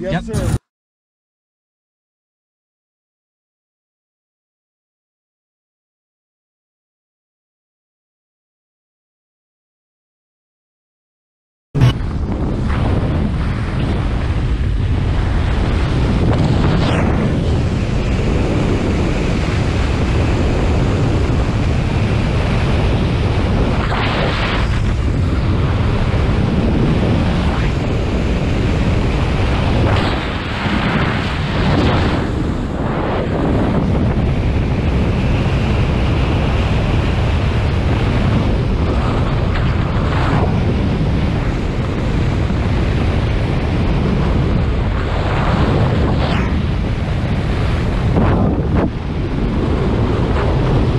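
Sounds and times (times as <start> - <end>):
wind rushing on microphone: 11.8 - 50.9.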